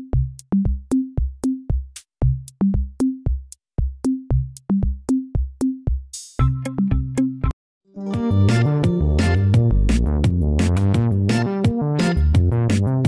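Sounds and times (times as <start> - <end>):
electronic music with drum machine: 4.0 - 7.5, 8.1 - 13.0.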